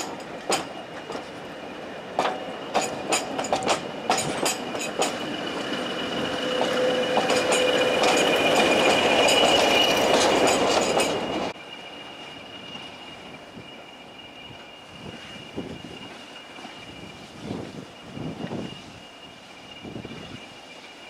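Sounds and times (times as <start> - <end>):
train wheels clicking over rail joints: 0.0 - 1.5, 2.1 - 11.6
diesel locomotive engine whine: 0.0 - 21.0.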